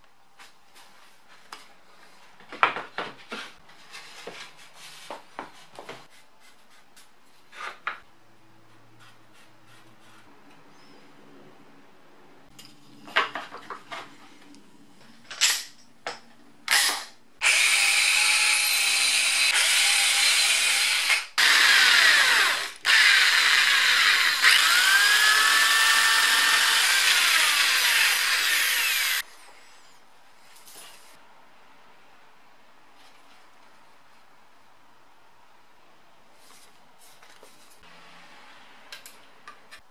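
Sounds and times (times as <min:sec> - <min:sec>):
electric drill boring plywood: 0:16.7 - 0:29.2.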